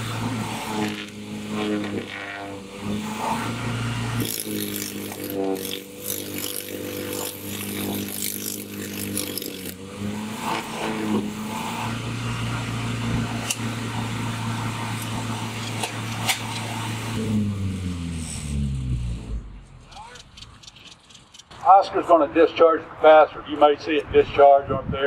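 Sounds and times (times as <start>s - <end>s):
engine running: 0.0s - 24.4s
sharp clicks: 19.8s - 21.7s.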